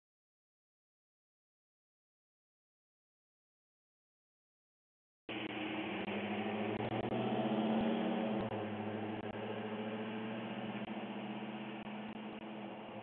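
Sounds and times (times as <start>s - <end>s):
vehicle engine running: 5.3s - 13.0s.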